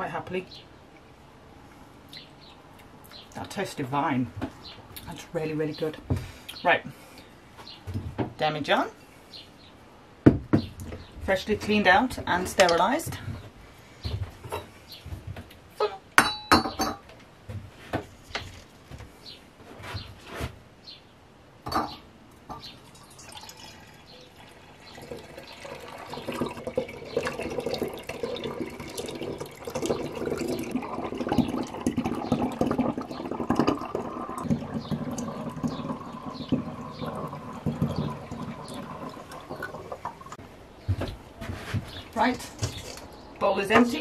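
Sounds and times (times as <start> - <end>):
liquid pouring and splashing: 22.8 - 40.4.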